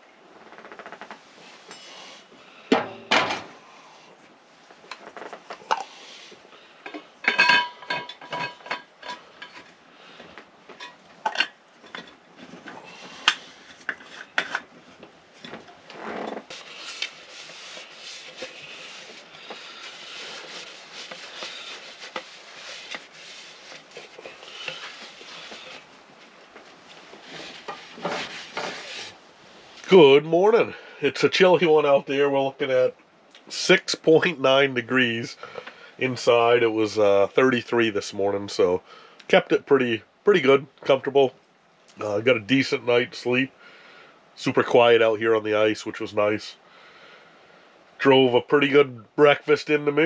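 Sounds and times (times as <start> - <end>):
metal cookware clinking: 7.2 - 9.6.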